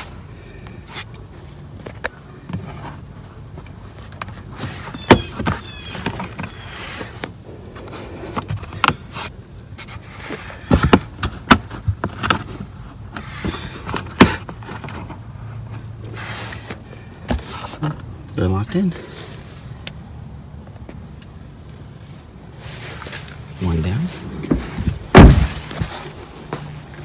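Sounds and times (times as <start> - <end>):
rubber mat scuffing and rubbing: 24.2 - 27.0.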